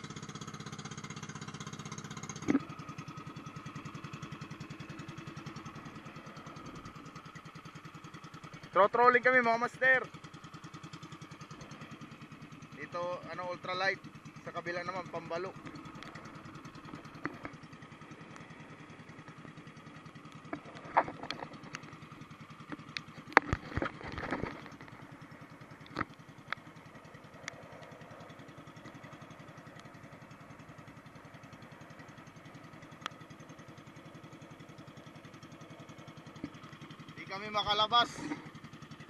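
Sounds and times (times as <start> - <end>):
boat engine running: 0.0 - 39.0
sharp knocks and clatters: 16.8 - 17.6, 20.4 - 21.9, 22.6 - 25.1.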